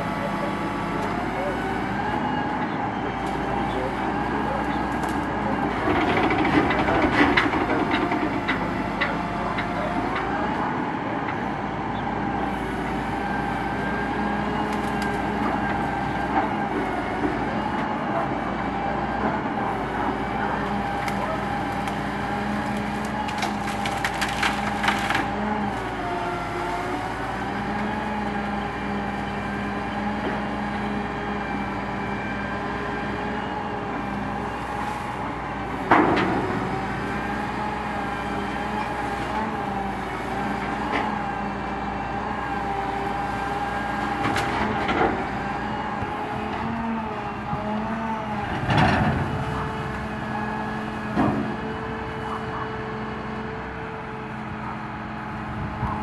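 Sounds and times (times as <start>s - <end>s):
hydraulics whining: 0.0s - 56.0s
branches crackling and breaking: 4.8s - 6.5s, 14.6s - 15.9s, 20.6s - 27.8s, 43.4s - 44.9s.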